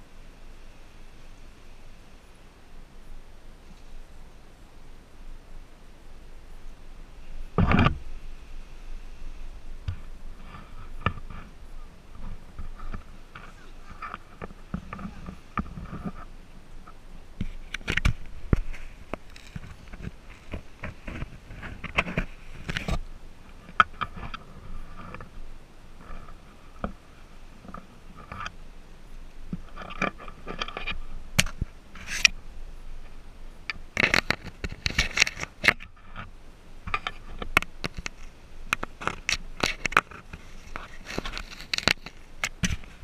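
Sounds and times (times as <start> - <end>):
monkey scraping and biting plastic: 37.9 - 43.0.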